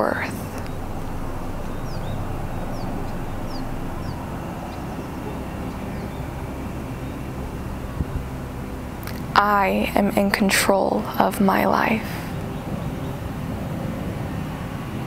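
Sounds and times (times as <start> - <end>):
bird chirping: 0.0 - 9.3
distant engine rumble: 0.0 - 15.0.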